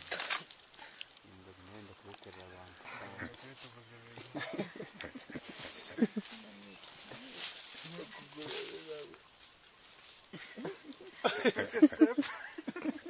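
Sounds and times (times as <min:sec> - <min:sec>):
high-pitched insect drone: 0:00.0 - 0:13.0
low humming voice: 0:02.2 - 0:06.2.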